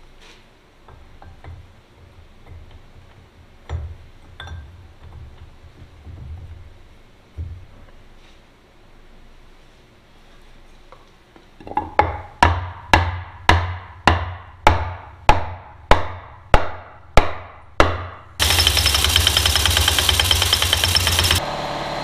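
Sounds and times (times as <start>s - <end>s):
air impact wrench rattling: 18.4s - 21.4s.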